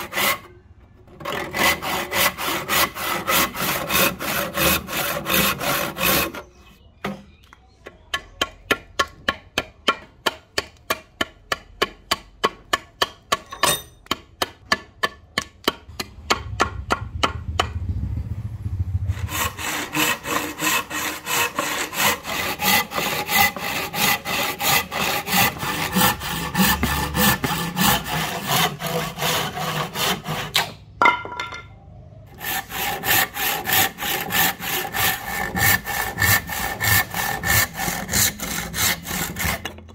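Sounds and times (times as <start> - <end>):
hand saw rasping through wood: 0.0 - 0.5, 1.1 - 6.6, 19.1 - 30.8, 32.3 - 39.9.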